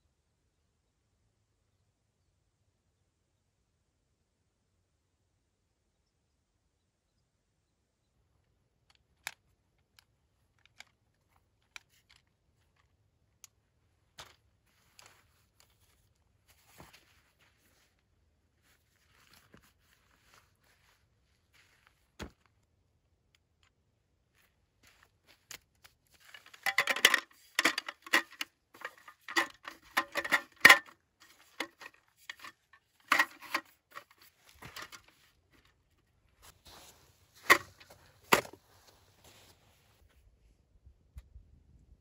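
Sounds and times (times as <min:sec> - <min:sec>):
camp table clattering: 0:26.2 - 0:35.2, 0:36.7 - 0:38.6.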